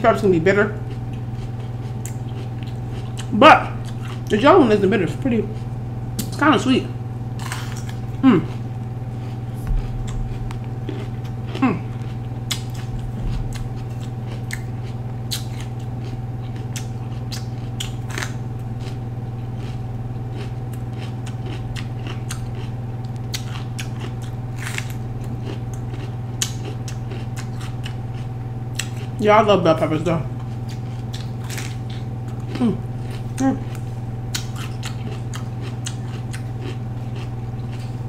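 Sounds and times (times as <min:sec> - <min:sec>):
steady low hum: 0:00.0 - 0:38.0
crisp crunches of chewing pepper: 0:00.2 - 0:06.7, 0:07.3 - 0:29.2, 0:30.3 - 0:38.0.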